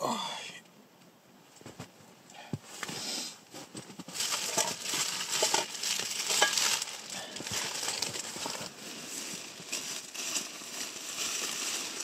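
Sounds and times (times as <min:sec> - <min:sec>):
quilt fabric rustling and crinkling: 0:02.7 - 0:12.0.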